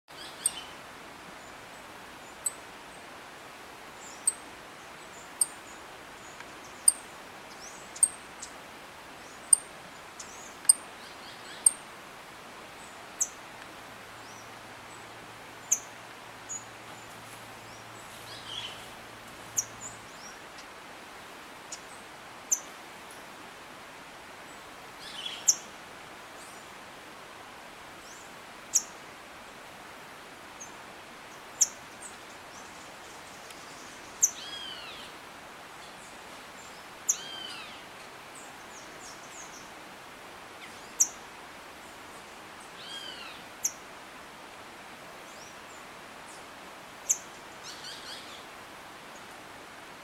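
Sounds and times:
steady background hiss: 0.1s - 50.0s.

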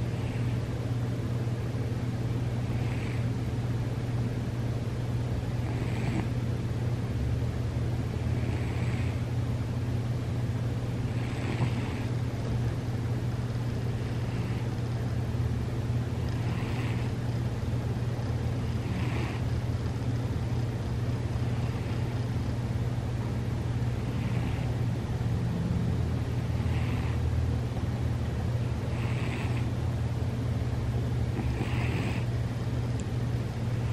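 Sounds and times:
cat snoring softly: 0.0s - 0.6s, 2.6s - 3.4s, 5.6s - 6.4s, 8.2s - 9.3s, 11.0s - 12.2s, 14.0s - 14.8s, 16.2s - 17.2s, 18.6s - 19.5s, 21.5s - 22.2s, 24.0s - 24.8s, 26.6s - 27.2s, 28.8s - 29.7s, 31.3s - 32.3s
steady low hum: 0.0s - 33.9s.

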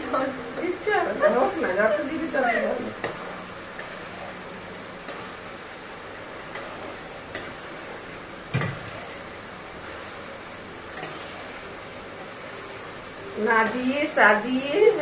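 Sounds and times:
gravy sizzling in a pan: 0.0s - 15.0s.

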